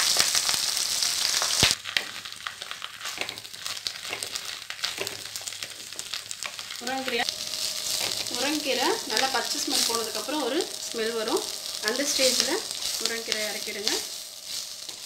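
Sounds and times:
leaves sizzling in hot oil: 0.0 - 15.0
wooden spatula scraping and clicking: 2.0 - 6.8, 11.6 - 15.0.

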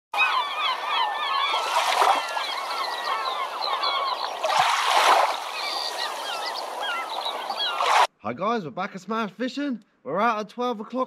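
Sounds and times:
birds chattering: 0.2 - 8.1.

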